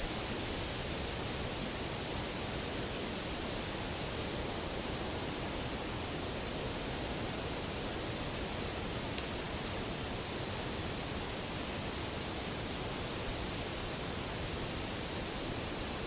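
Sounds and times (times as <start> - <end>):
steady background hiss: 0.0 - 16.0
faint tick: 9.1 - 9.4.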